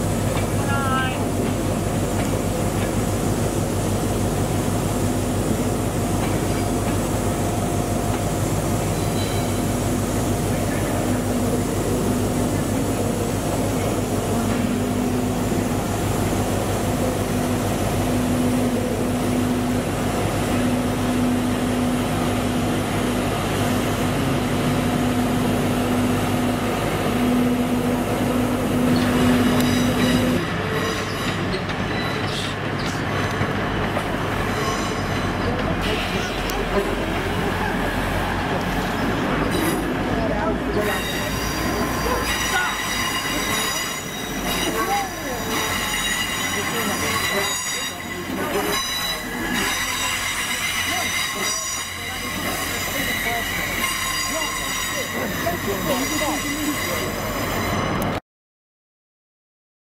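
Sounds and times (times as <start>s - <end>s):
diesel train pulling in: 0.0s - 58.2s
electric locomotive humming: 0.0s - 58.2s
wheel squeal: 28.9s - 33.0s, 34.4s - 36.4s, 40.7s - 58.1s.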